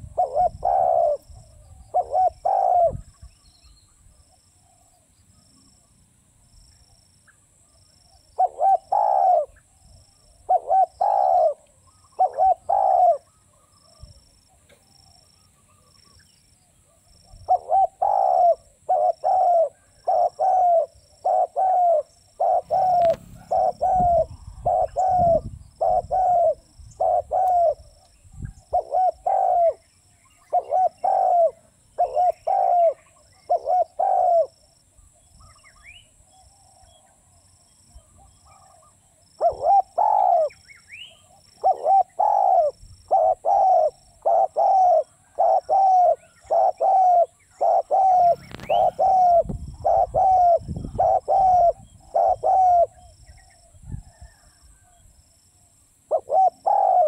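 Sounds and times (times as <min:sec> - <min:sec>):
dove cooing: 0:00.0 - 0:03.2, 0:08.4 - 0:09.6, 0:10.4 - 0:14.2, 0:16.9 - 0:34.7, 0:38.0 - 0:54.9, 0:56.1 - 0:57.0.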